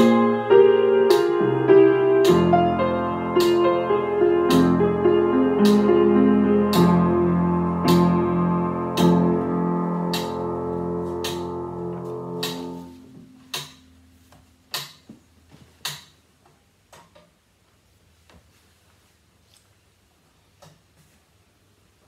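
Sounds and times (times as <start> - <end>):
piano chords: 0.0 - 14.8
sheet music knocks and taps: 2.2 - 3.8, 4.5 - 5.0, 5.6 - 6.0, 6.7 - 7.1, 7.8 - 8.3, 10.1 - 17.4.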